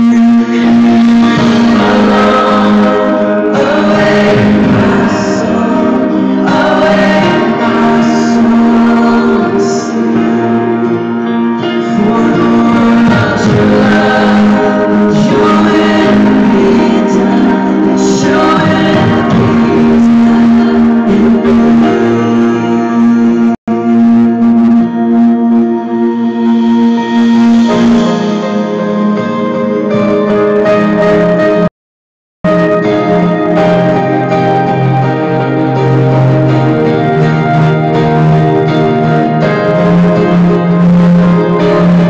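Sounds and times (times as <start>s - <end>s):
worship band playing: 0.0s - 31.7s, 32.5s - 42.0s
woman singing lead: 11.7s - 24.2s.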